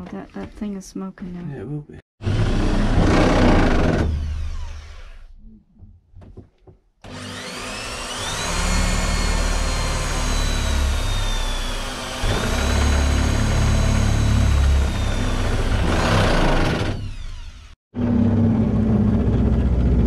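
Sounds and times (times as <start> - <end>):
electric drill boring into wall: 2.2 - 5.3, 7.0 - 18.2
small knocks: 5.8 - 6.9.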